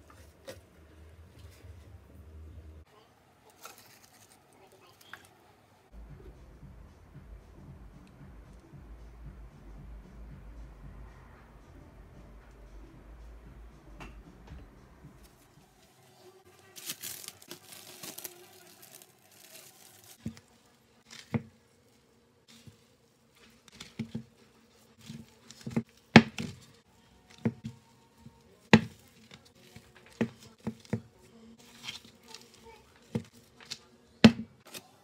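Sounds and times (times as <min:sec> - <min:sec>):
rustling and crinkling: 0:03.4 - 0:05.4, 0:15.2 - 0:33.9
dough slapping in a bowl: 0:25.0 - 0:27.7.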